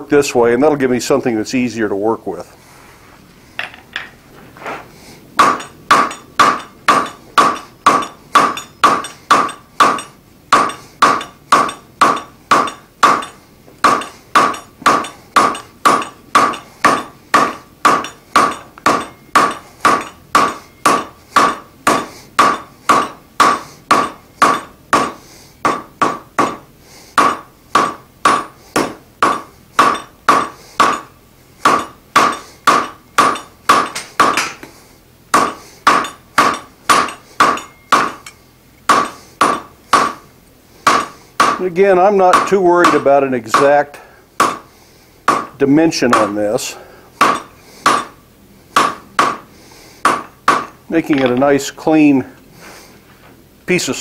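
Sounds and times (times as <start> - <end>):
hammer striking hot metal on anvil: 5.4 - 34.7, 35.3 - 40.2, 40.8 - 43.8, 44.4 - 44.7, 45.3 - 46.5, 47.2 - 48.2, 48.8 - 51.3.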